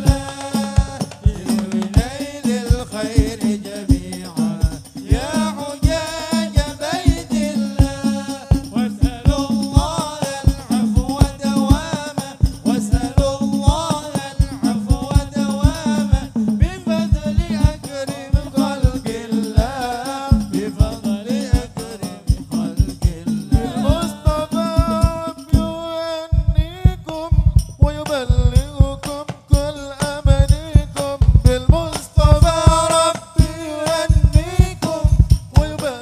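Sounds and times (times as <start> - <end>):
person singing melismatic melody: 0.0 - 26.4
frame drums beating: 0.0 - 36.0.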